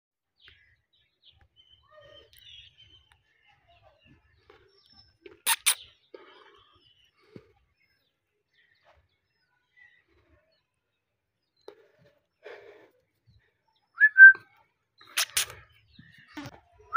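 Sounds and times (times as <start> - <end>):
parakeet chirping and chattering: 5.4 - 6.0, 15.0 - 15.6.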